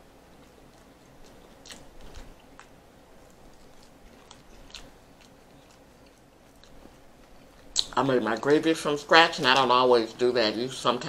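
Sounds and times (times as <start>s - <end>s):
chewing crunchy chicken skin: 0.3s - 8.0s.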